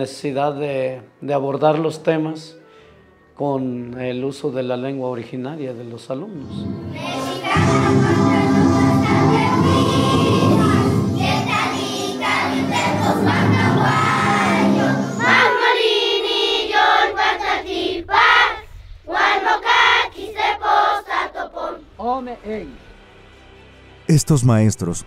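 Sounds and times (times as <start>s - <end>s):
music: 0.0s - 25.0s
schoolchildren singing in unison: 6.4s - 21.8s.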